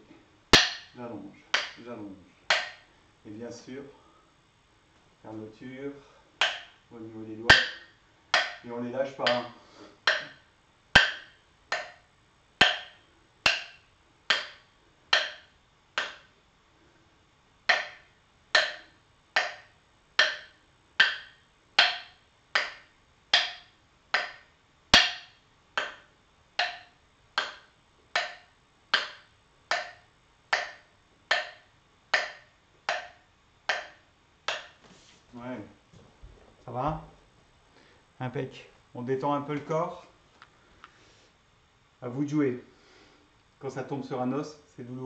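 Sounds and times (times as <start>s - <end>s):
wooden sticks clacking: 0.5s - 2.9s, 6.4s - 6.9s, 7.5s - 16.4s, 17.6s - 34.9s.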